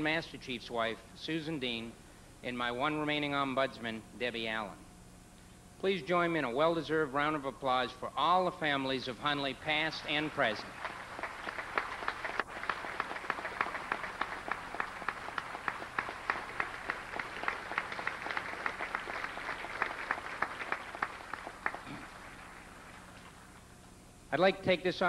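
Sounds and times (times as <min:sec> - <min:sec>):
audience applauding: 0:10.1 - 0:23.5
crisp evenly paced claps: 0:10.1 - 0:23.8.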